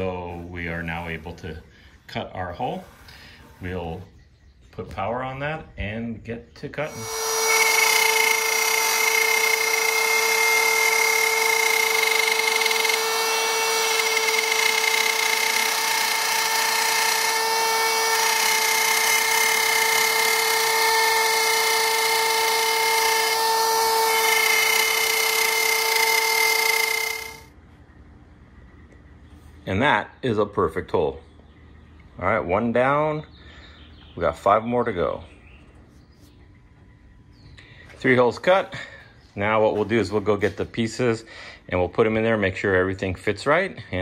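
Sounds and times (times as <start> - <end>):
router motor whine: 6.8 - 27.6
router bit rasping in wood: 6.9 - 27.5.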